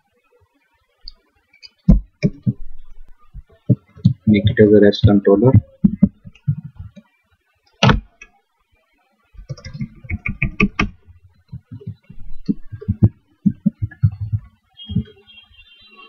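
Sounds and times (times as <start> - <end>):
computer keyboard typing: 9.4 - 15.1.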